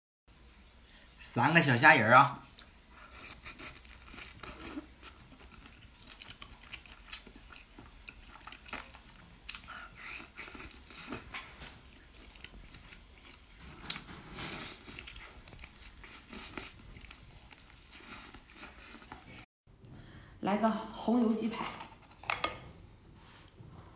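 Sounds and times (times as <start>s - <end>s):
chewing with wet mouth clicks: 2.5s - 14.0s, 14.7s - 19.4s.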